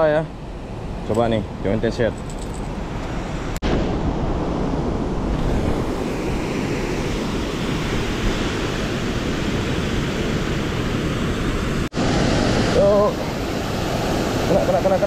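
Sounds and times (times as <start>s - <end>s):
water rushing through spillway: 11.8s - 15.0s.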